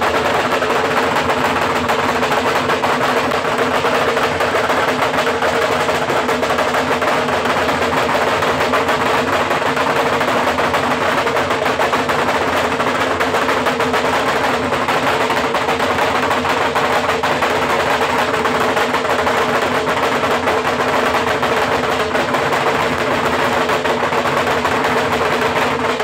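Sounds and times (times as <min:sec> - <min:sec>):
drums beaten with canes: 0:00.0 - 0:26.0.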